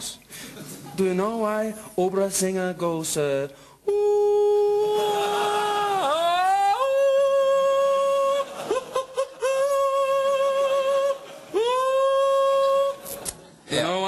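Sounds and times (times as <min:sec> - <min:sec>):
man singing high held notes: 0:03.8 - 0:08.5.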